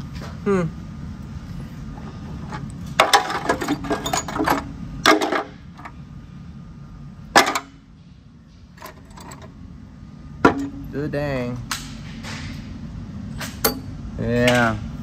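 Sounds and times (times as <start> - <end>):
broken metal parts rattling: 2.4 - 5.9, 7.4 - 7.8, 8.8 - 9.5
sharp metal clank: 13.4 - 13.9.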